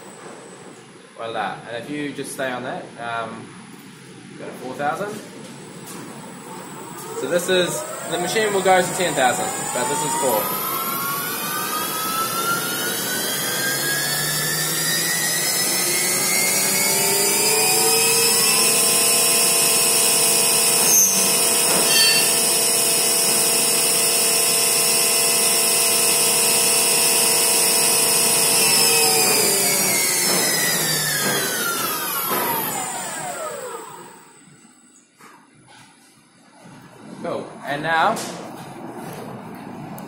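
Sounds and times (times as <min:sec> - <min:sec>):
milling machine spindle motor whining: 0:06.1 - 0:34.7.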